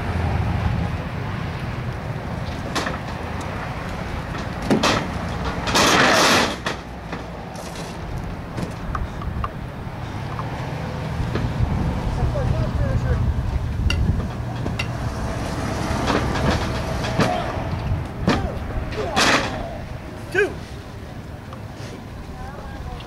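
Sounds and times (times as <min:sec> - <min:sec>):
traffic rumble: 0:00.0 - 0:23.0
wind: 0:00.0 - 0:23.0.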